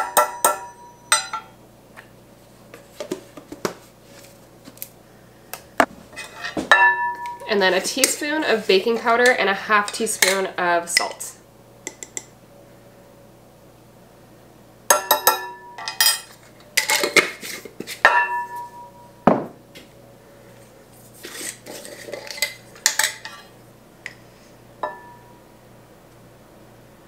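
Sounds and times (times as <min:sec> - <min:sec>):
metal spoon clinking on glass: 0:00.0 - 0:01.5.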